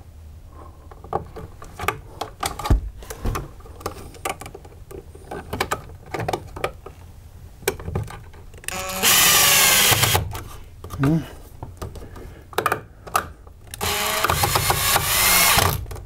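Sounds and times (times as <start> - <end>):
clicks and knocks of handling: 0.9 - 8.8, 10.3 - 14.4
cordless drill driving screw: 8.7 - 10.2, 13.8 - 15.8.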